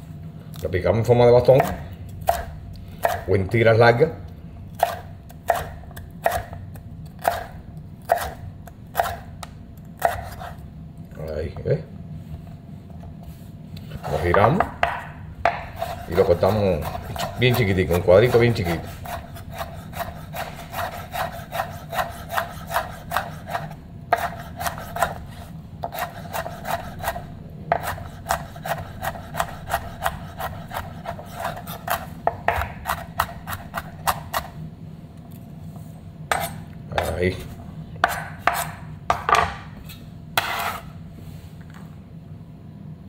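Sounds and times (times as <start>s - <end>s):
knife chopping on cutting board: 1.5s - 3.3s, 4.8s - 6.6s, 7.2s - 9.2s, 10.0s - 10.6s, 14.2s - 34.5s, 38.0s - 39.7s, 40.4s - 40.9s.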